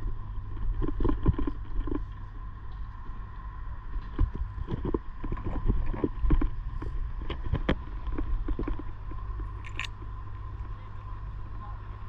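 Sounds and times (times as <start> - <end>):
steady low rumble: 0.0 - 12.0
metal cable clamp knocks and clicks: 9.6 - 9.9.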